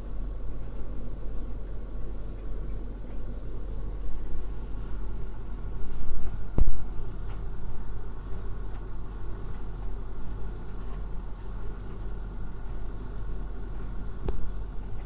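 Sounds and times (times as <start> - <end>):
tumble dryer rumbling: 0.0 - 15.0
sharp click: 14.2 - 14.5.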